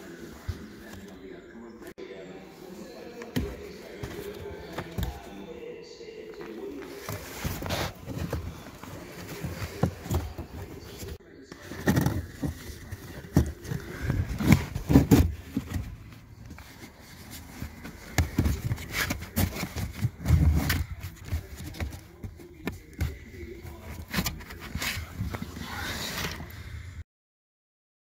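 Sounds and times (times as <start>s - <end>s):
paper filter rustling: 6.4s - 26.4s.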